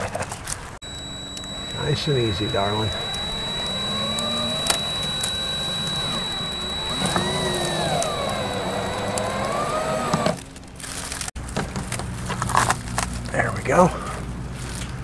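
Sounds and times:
cordless drill motor whine: 0.8s - 10.6s.

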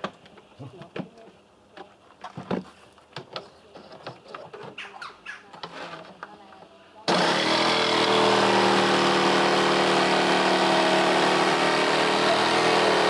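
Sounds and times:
wooden planks knocking and clicking: 0.0s - 4.9s.

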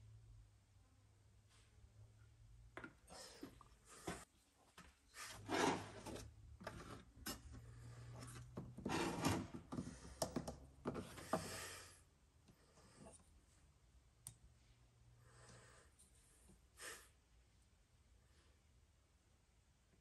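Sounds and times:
plastic jug scraping on bench: 5.2s - 7.1s, 8.2s - 9.8s.

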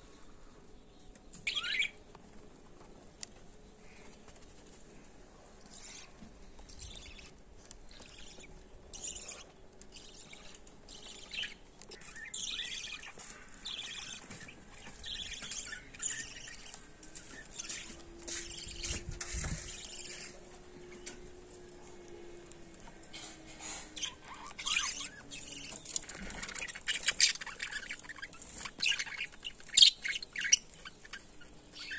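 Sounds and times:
budgerigars chirping and chattering: 1.3s - 2.0s, 5.6s - 21.2s, 23.1s - 31.9s.

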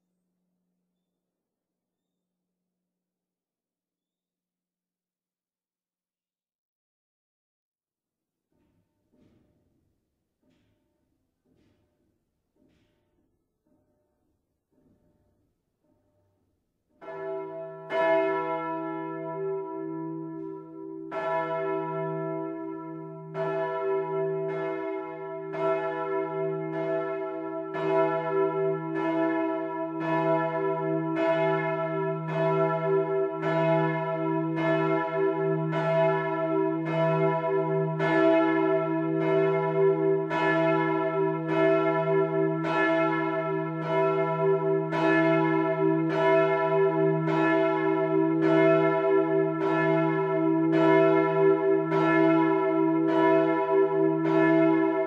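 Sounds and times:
church bell ringing: 17.0s - 55.0s.

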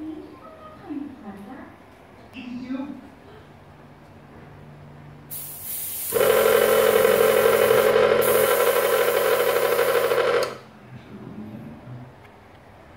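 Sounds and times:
air hissing: 5.3s - 10.2s
compressor buzzing drone: 5.3s - 10.6s.

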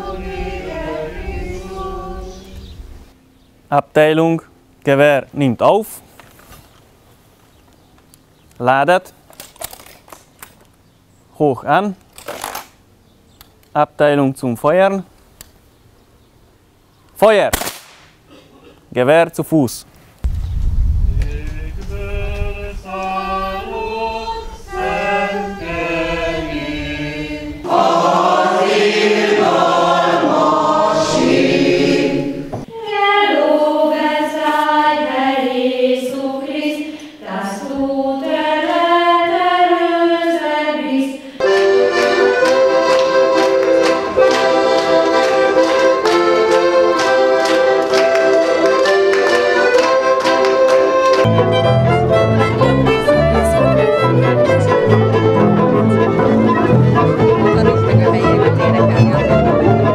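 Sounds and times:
girls choir singing: 0.0s - 2.8s, 21.9s - 50.7s
voices singing melody: 0.0s - 3.0s, 21.2s - 59.9s
accordion sustained chords: 0.0s - 3.5s, 21.4s - 59.9s.

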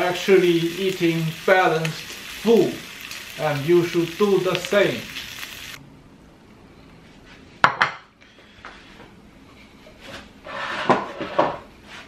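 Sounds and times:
frying sizzle: 0.0s - 5.8s.

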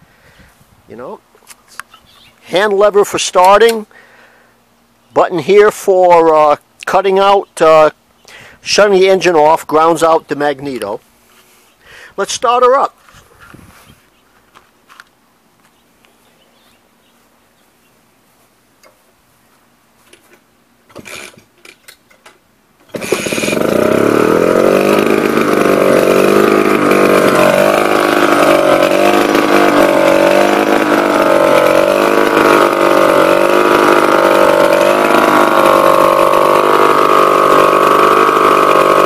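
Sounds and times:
engine starting rattles: 20.9s - 21.9s, 22.8s - 39.0s
stationary engine running: 22.9s - 39.0s.

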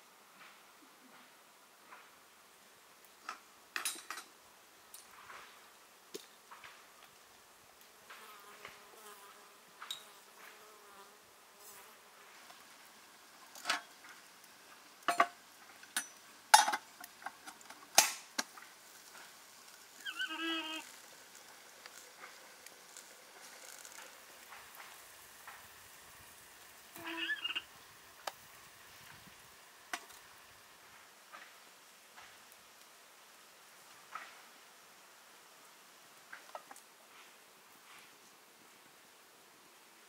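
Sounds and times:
fly buzzing: 20.0s - 21.0s, 27.0s - 27.7s.

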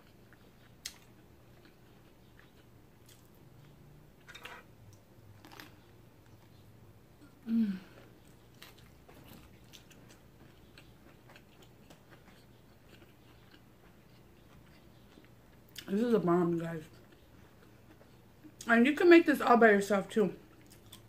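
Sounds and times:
person chewing: 0.0s - 15.9s, 16.9s - 18.7s, 20.5s - 21.0s
person humming mmm: 7.2s - 8.1s.

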